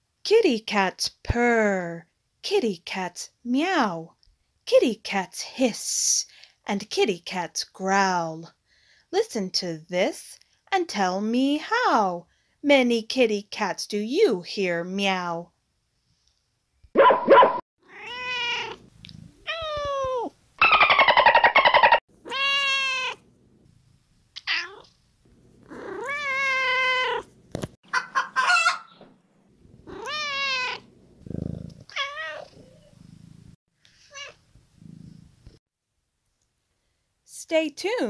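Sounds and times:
cat meowing: 0:17.8 - 0:18.8, 0:19.4 - 0:20.3, 0:22.2 - 0:23.2, 0:24.4 - 0:24.9, 0:25.7 - 0:27.3, 0:29.8 - 0:30.9, 0:31.9 - 0:32.7, 0:34.0 - 0:34.4
rough pulsing cat cry: 0:17.8 - 0:20.2, 0:22.2 - 0:23.3, 0:25.6 - 0:27.3, 0:29.8 - 0:30.9, 0:31.9 - 0:32.9.

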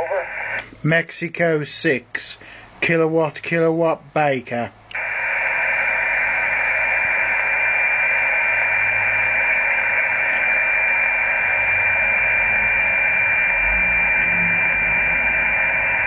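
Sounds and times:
radio receiver hiss: 0:00.0 - 0:00.9, 0:04.9 - 0:16.0
steady high whistle: 0:05.0 - 0:16.0.

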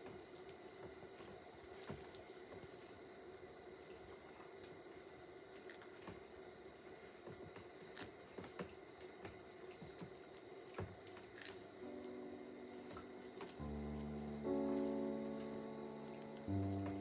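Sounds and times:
tortoise crunching leaves: 0:05.6 - 0:06.0, 0:11.2 - 0:11.7
soft music: 0:11.0 - 0:17.0.

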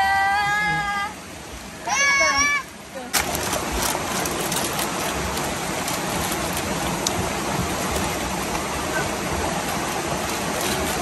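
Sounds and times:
river rushing: 0:00.0 - 0:11.0
plastic packet crinkling: 0:03.2 - 0:07.0.

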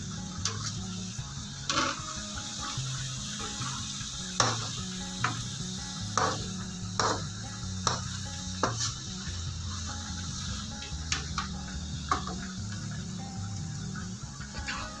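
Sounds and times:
onions sizzling in frying pan: 0:00.0 - 0:15.0
spatula scraping and knocking pan: 0:01.6 - 0:02.8, 0:03.4 - 0:09.0, 0:10.4 - 0:13.0.

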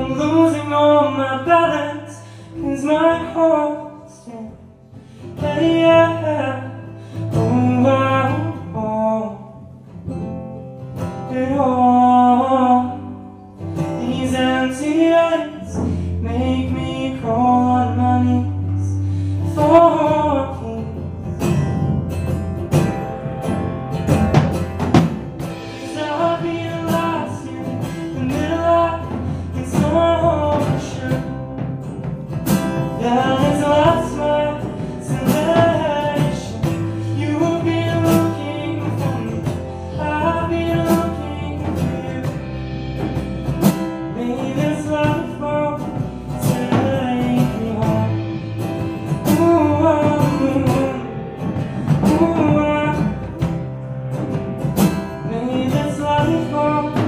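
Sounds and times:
person singing: 0:00.0 - 0:09.8, 0:25.5 - 0:31.9, 0:32.6 - 0:53.7, 0:55.2 - 0:57.0
bass guitar: 0:00.0 - 0:57.0
strummed acoustic guitar: 0:00.0 - 0:57.0
drum kit: 0:04.5 - 0:09.3, 0:09.9 - 0:57.0.

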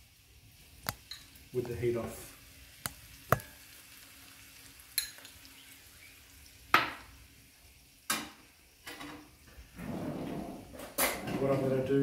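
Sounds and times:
butter sizzling: 0:00.0 - 0:09.8
utensils clinking on frying pan: 0:05.0 - 0:05.3.

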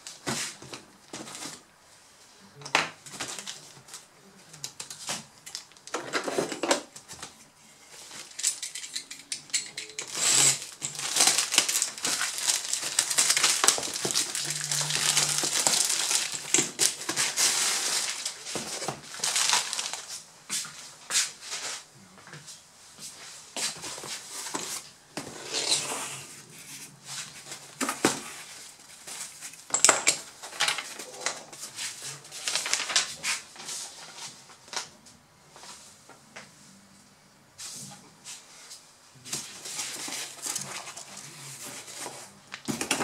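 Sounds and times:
plastic mailer bag crinkling: 0:10.0 - 0:20.2, 0:32.4 - 0:33.6.

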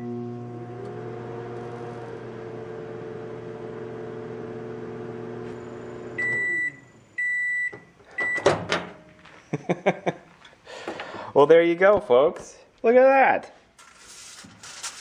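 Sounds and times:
microwave oven humming: 0:00.0 - 0:07.5
microwave beeps: 0:05.4 - 0:08.5.

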